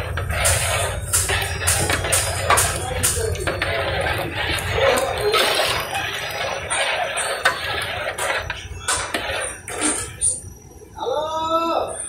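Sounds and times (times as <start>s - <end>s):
ladle scraping metal pot: 0.0s - 10.4s
water bubbling: 1.8s - 9.2s.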